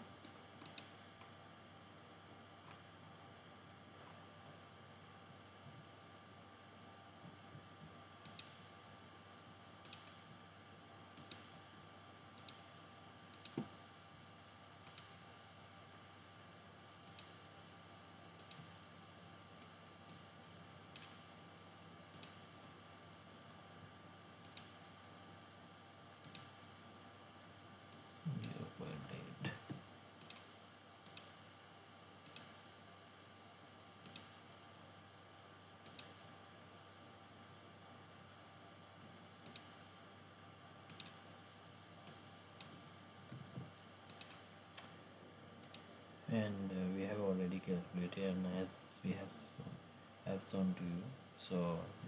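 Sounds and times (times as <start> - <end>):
faint steady hum: 0.0 - 52.0
computer mouse clicking: 0.2 - 1.3, 8.2 - 8.7, 9.8 - 10.3, 11.1 - 11.6, 12.3 - 12.7, 13.3 - 13.8, 14.8 - 15.2, 17.0 - 17.4, 18.4 - 18.8, 20.0 - 20.3, 20.9 - 21.2, 22.1 - 22.5, 24.4 - 24.8, 26.2 - 26.6, 30.2 - 31.5, 32.2 - 32.7, 34.0 - 34.4, 35.8 - 36.3, 39.4 - 39.8, 40.8 - 41.3, 42.0 - 44.9, 45.6 - 45.9.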